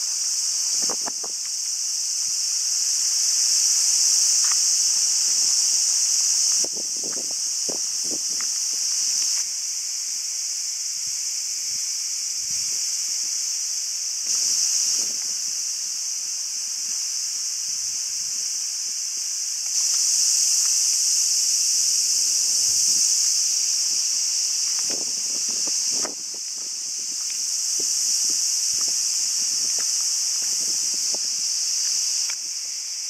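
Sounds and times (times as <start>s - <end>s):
insects buzzing in trees: 0.0s - 33.0s.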